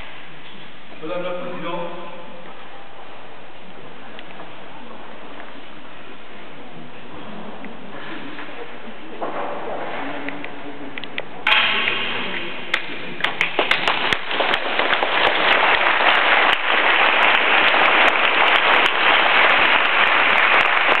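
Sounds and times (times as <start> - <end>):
audience applause: 11.5 - 21.0.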